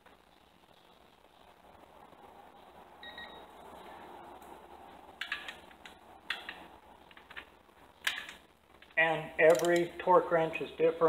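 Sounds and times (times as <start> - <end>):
wrench and socket clicking: 9.4 - 9.9.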